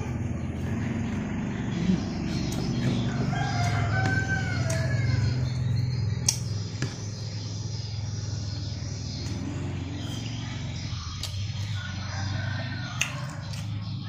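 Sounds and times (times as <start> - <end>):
steady low hum: 0.0 - 14.0
rooster crowing: 2.8 - 5.7, 11.6 - 13.7.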